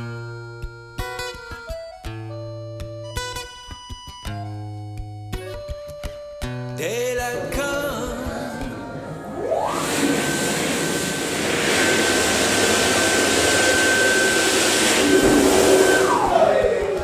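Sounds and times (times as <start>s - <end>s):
motor high whine: 8.3s - 17.0s.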